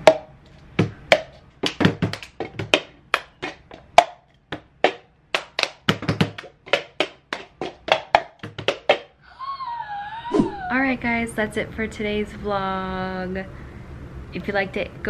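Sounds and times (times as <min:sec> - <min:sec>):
cups knocking on wooden table: 0:00.1 - 0:09.1
hand claps: 0:01.1 - 0:04.2, 0:04.8 - 0:09.1.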